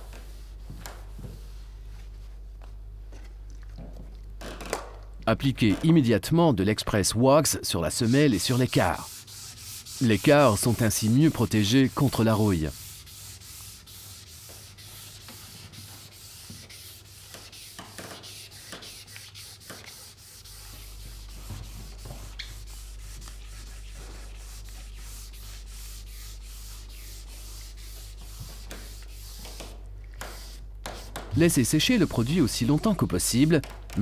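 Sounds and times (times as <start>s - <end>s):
wax applicator scratching ski: 7.9s - 21.3s.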